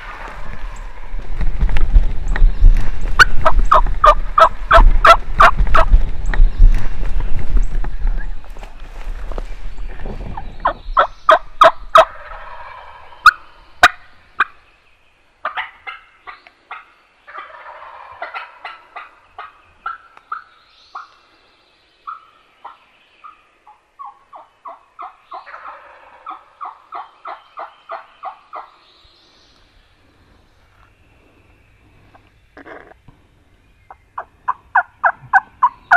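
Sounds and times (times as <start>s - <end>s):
footsteps: 0.0s - 10.3s
brush rustling: 0.0s - 10.6s
wild turkeys yelping and gobbling: 3.2s - 5.9s, 11.0s - 14.6s, 15.4s - 21.2s, 22.0s - 28.8s, 33.9s - 35.9s.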